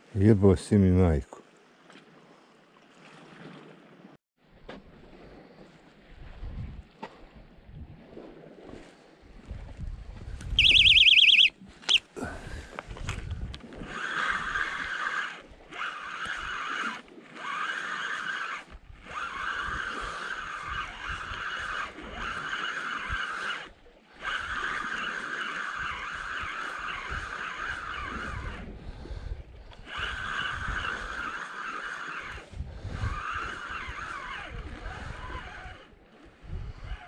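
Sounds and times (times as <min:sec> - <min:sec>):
spinning reel whirring: 0:10.6 - 0:11.5, 0:13.8 - 0:28.8, 0:29.8 - 0:36.0
electronic bite alarm warbling: 0:10.6 - 0:12.0.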